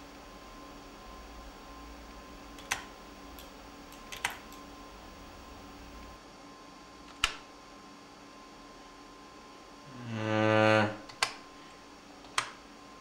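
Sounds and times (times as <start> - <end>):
faint steady hum: 0.0 - 13.0
keyboard keys clicking: 2.6 - 4.5.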